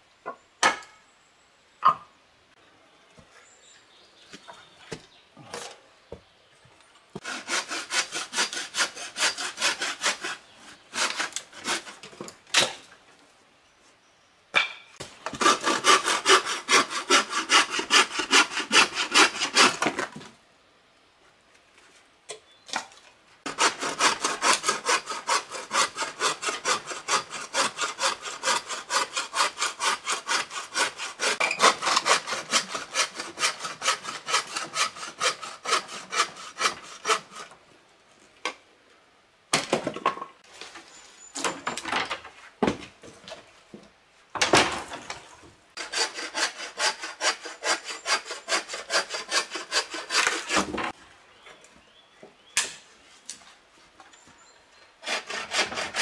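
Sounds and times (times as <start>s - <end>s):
hand saw cutting branch: 7.2s - 12.8s, 15.2s - 20.1s, 23.5s - 37.5s, 45.8s - 50.8s, 55.0s - 56.0s.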